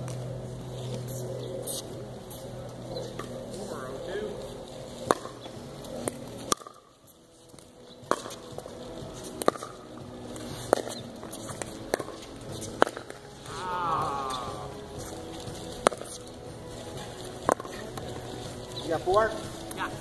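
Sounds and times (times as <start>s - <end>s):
paddles striking ball: 5.0s - 6.9s, 7.6s - 13.6s, 15.4s - 16.2s, 17.3s - 19.1s
short falling call: 13.4s - 14.8s.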